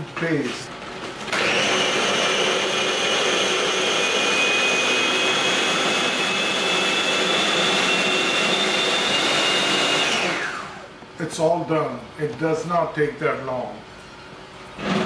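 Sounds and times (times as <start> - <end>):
food processor motor whining: 1.1 - 11.0.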